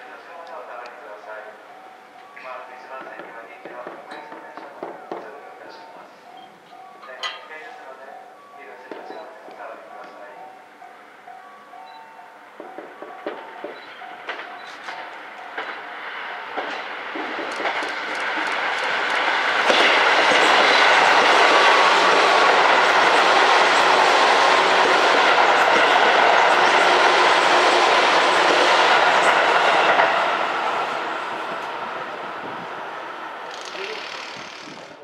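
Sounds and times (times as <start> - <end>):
train wheel and rail noise: 0.0 - 35.0
train wheels clicking on rail joints: 12.6 - 30.4, 33.4 - 35.0.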